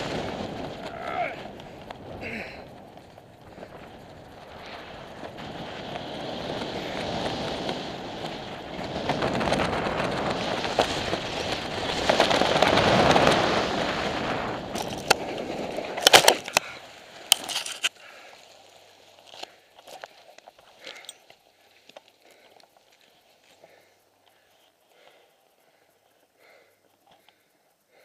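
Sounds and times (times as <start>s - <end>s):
wind rushing over microphone: 0.0s - 16.6s
knocks and scrapes on gravel: 17.3s - 18.0s.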